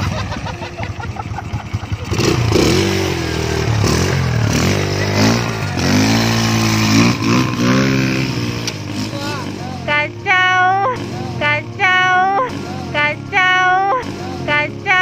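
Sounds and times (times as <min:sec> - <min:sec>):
small motorcycle engine revving: 0:00.0 - 0:10.1.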